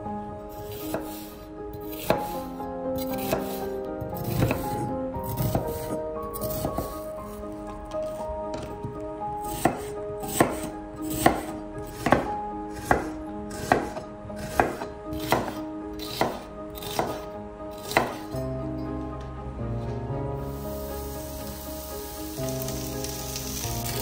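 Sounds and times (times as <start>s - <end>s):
knife slicing on cutting board: 0.6s - 7.4s, 9.4s - 17.2s, 17.8s - 18.2s.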